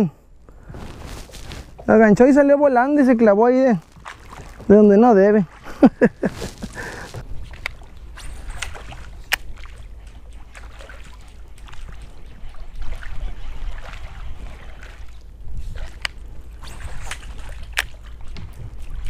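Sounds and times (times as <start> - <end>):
faint water sounds: 0.0 - 19.0
wind rumbling on microphone: 3.1 - 19.0.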